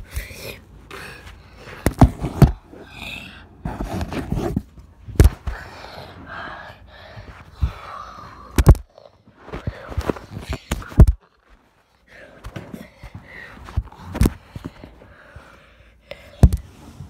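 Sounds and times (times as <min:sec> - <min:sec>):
rustling and scraping: 0:03.6 - 0:05.6, 0:08.6 - 0:15.0.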